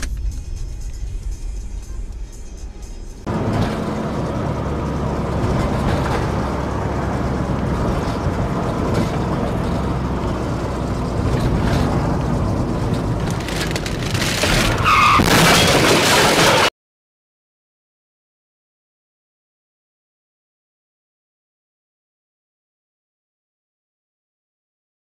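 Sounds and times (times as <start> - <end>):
car road and engine noise: 0.0 - 16.7
high squeal: 14.6 - 15.7.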